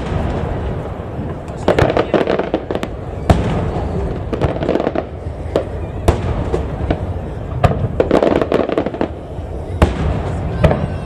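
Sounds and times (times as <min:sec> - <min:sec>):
firework pops: 0:00.0 - 0:09.2.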